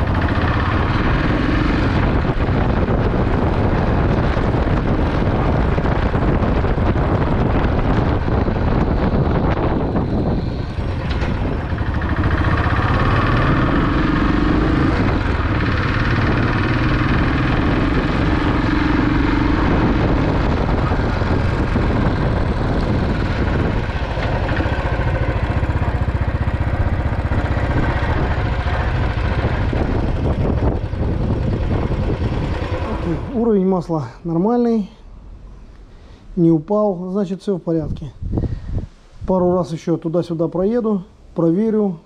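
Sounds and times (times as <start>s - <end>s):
motorcycle engine running: 0.0s - 33.6s.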